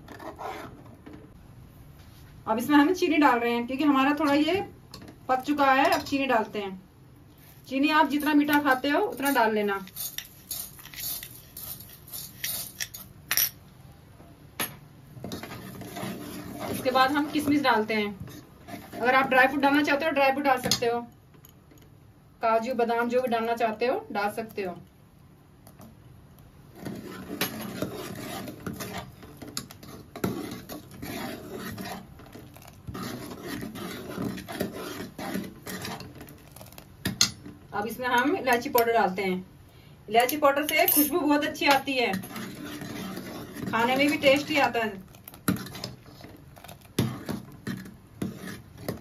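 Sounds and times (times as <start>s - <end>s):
ladle scraping a metal pot: 8.2s - 13.2s, 15.2s - 19.4s, 26.8s - 36.9s, 40.7s - 49.0s
spoon scraping and clinking bowl: 8.2s - 13.6s, 40.2s - 44.7s.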